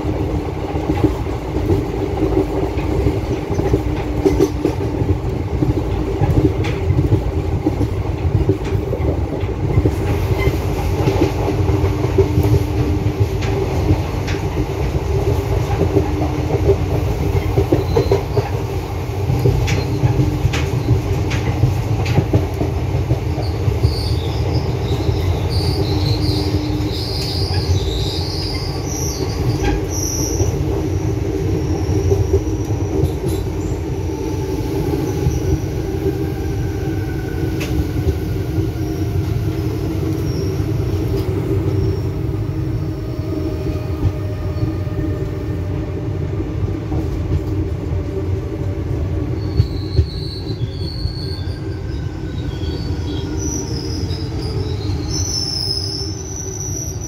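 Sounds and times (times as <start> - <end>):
train wheels rumbling on rail: 0.0 - 57.0
high-pitched wheel squeal: 49.4 - 57.0.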